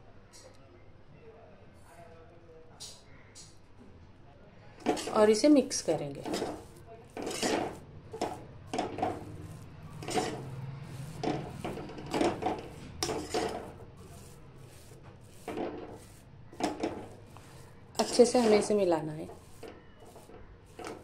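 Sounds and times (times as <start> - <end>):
spatula scraping metal pan: 4.8 - 21.0.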